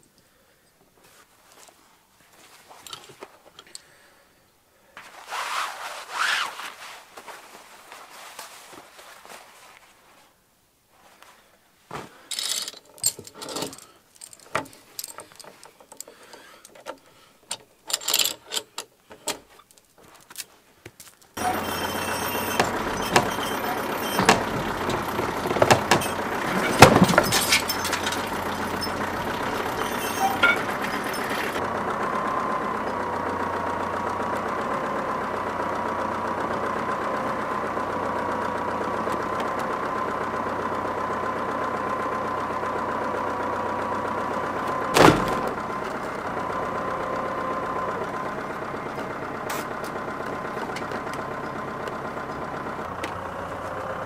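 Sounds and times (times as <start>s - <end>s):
small engine running: 21.4s - 54.0s.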